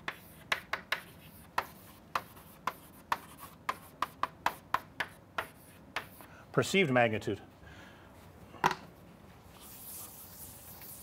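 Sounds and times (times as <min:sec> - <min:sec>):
chalk tapping on blackboard: 0:00.0 - 0:06.3.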